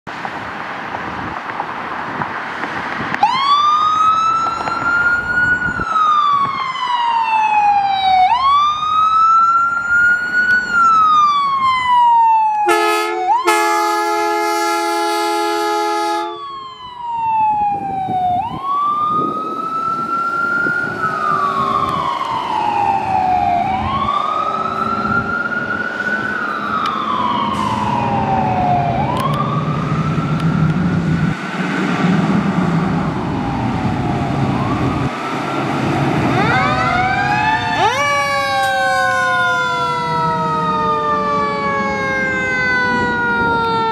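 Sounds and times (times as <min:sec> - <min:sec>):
sirens wailing: 0:00.2 - 0:43.9
fire truck air horn blast: 0:12.7 - 0:16.5, 0:27.5 - 0:28.0
diesel engine rumble: 0:13.1 - 0:43.9.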